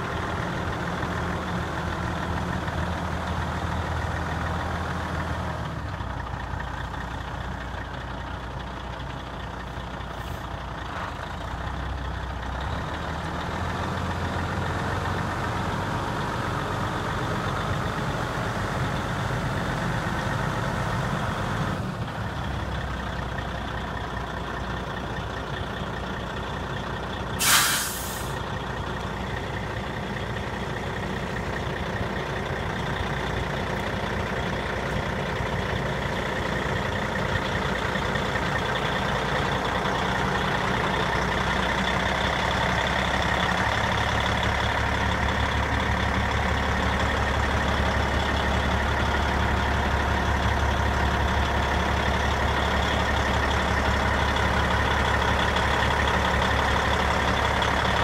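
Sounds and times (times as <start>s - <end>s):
diesel truck engine idling: 0.0s - 58.0s
air hiss: 27.4s - 28.4s.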